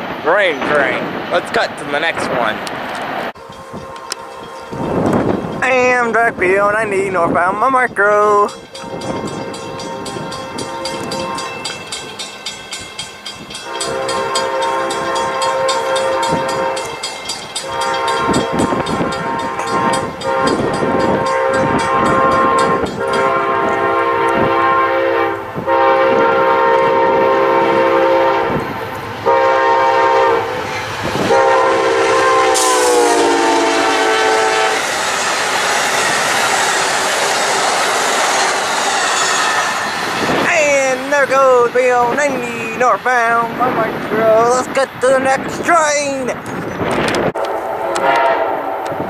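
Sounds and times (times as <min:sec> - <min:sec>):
train cars rumbling and clattering: 0:00.0 - 0:49.0
locomotive air horn blasts: 0:08.8 - 0:11.6, 0:13.6 - 0:17.0, 0:17.6 - 0:28.6, 0:29.2 - 0:30.5, 0:31.2 - 0:34.8, 0:47.4 - 0:48.8.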